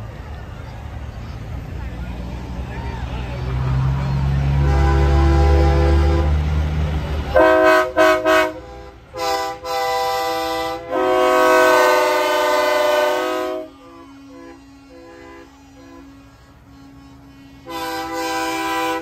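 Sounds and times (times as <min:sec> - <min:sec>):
diesel truck engine rumble: 0:00.0 - 0:19.0
distant truck horn toots: 0:03.4 - 0:06.6, 0:07.3 - 0:19.0
truck air horn blasting: 0:03.8 - 0:06.6, 0:07.3 - 0:19.0.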